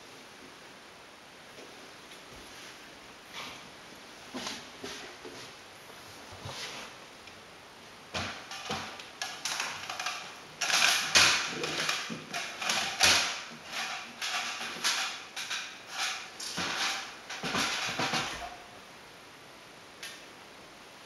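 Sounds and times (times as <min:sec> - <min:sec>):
footsteps on flooring: 0:04.3 - 0:06.9.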